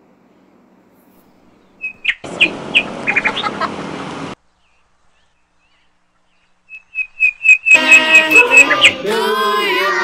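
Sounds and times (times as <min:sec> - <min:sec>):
birds chirping: 0:01.2 - 0:03.7, 0:04.4 - 0:09.4.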